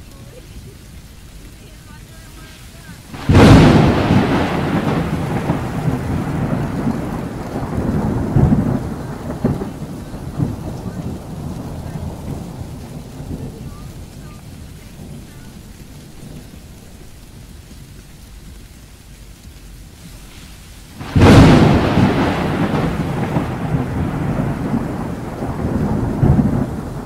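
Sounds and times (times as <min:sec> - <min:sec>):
heavy rain on a car: 0:00.0 - 0:27.0
rolling thunder: 0:03.0 - 0:17.7, 0:20.9 - 0:27.0.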